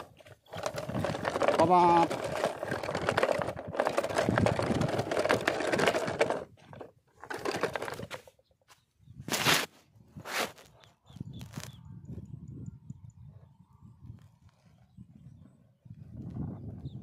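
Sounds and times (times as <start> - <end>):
toy truck scraping on sand: 0.0 - 8.3, 9.3 - 10.8.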